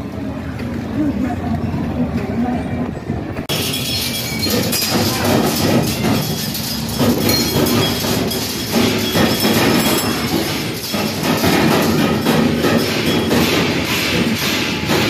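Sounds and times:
mechanical clatter and rumble: 0.0s - 15.0s
knocks and thumps: 4.4s - 15.0s.

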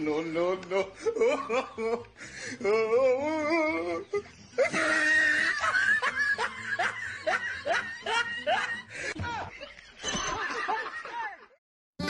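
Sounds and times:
boy crying: 0.9s - 5.7s.

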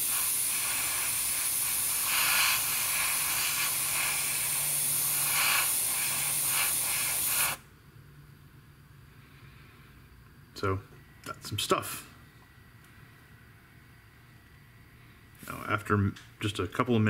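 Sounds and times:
airbrush spraying hiss: 0.0s - 7.6s.

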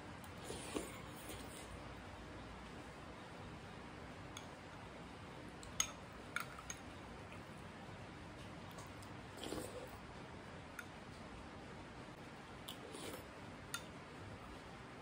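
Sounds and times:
slurping soup: 0.4s - 1.7s, 9.3s - 10.0s, 12.7s - 13.3s.

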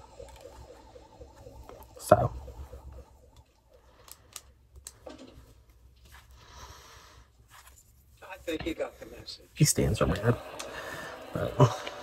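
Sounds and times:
soft rustle: 5.4s - 9.7s.

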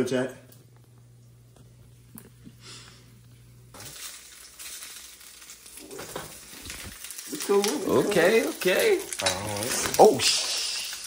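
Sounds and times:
food frying sizzle: 2.6s - 11.0s.

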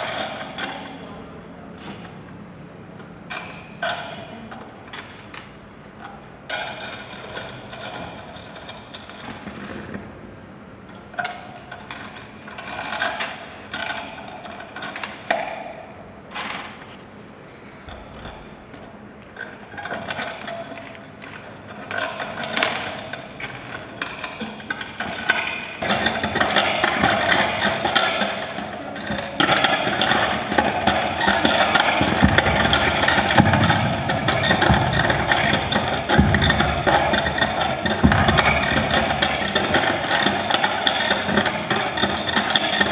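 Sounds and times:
chain jangling: 17.1s - 19.0s.

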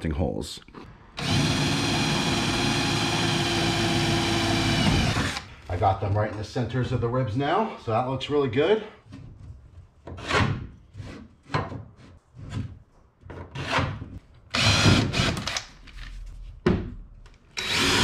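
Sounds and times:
cordless drill drilling plywood: 1.2s - 5.5s, 14.5s - 15.6s, 17.6s - 18.0s.

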